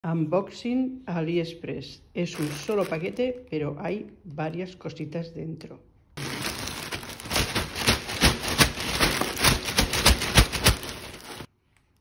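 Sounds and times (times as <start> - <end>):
plastic bag crinkling and tearing: 2.3 - 3.5, 6.2 - 11.5.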